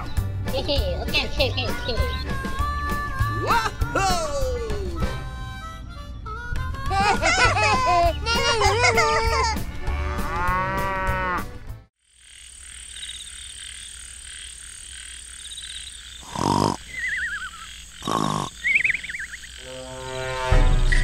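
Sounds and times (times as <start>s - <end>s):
cheerful melody: 0.7s - 9.7s
chorus of chirping frogs or insects: 12.0s - 21.0s
cartoon snore: 16.2s - 16.9s, 18.0s - 18.6s
wobbly whistle: 16.8s - 17.7s, 18.6s - 19.4s.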